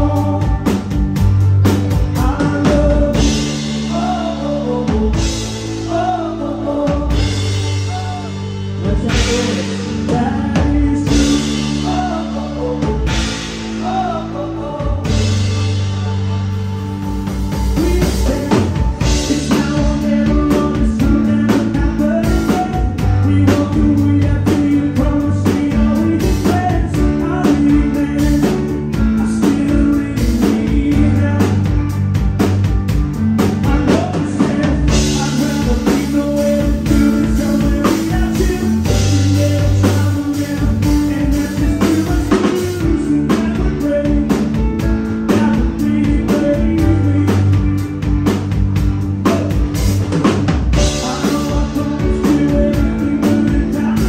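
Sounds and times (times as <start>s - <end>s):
drum kit steady beat: 0.0s - 54.0s
rock band playing: 0.0s - 54.0s.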